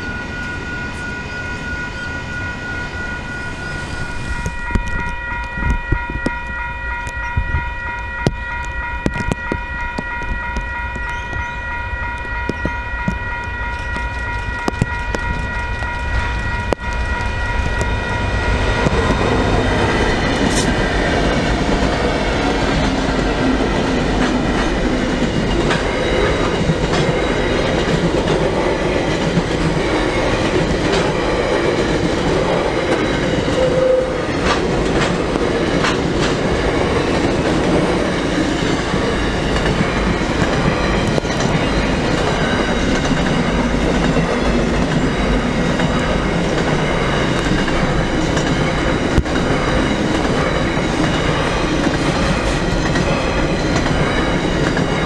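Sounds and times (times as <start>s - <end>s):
level crossing bell ringing: 0.0s - 31.6s
diesel locomotives passing: 0.0s - 55.0s
freight train rumbling past: 0.0s - 55.0s.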